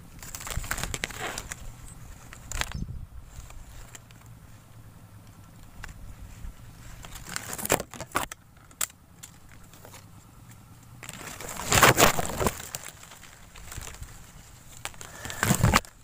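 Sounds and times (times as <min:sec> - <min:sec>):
twigs snapping: 0:00.0 - 0:04.4, 0:05.2 - 0:16.0
leaves and twigs rustling: 0:00.0 - 0:16.0
microphone handling noise: 0:15.0 - 0:15.9.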